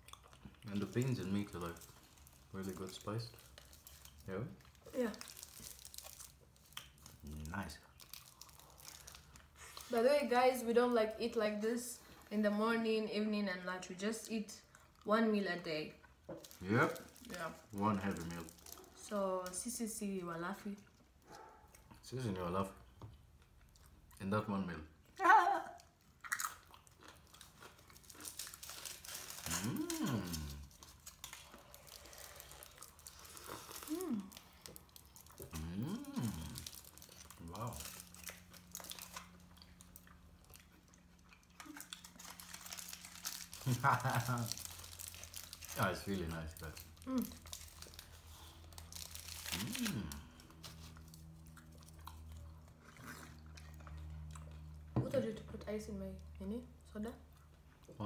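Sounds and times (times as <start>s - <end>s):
chewing and biting: 0.0s - 9.9s, 25.8s - 55.0s
aluminium foil crinkling: 0.6s - 11.4s, 16.3s - 20.4s, 27.3s - 52.0s.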